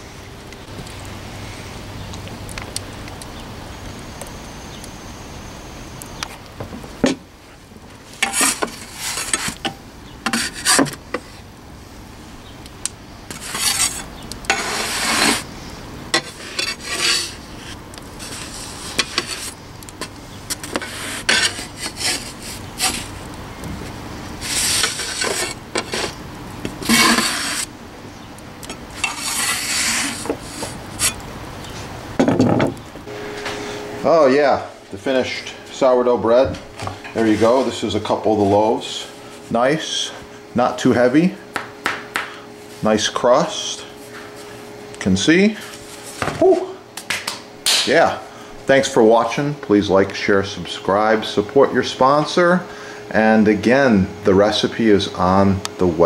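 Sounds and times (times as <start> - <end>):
metal peel scraping oven floor: 8.1 - 11.0, 13.3 - 15.5, 16.1 - 23.3, 24.3 - 26.2, 26.8 - 27.7, 28.9 - 31.2, 37.1 - 38.2.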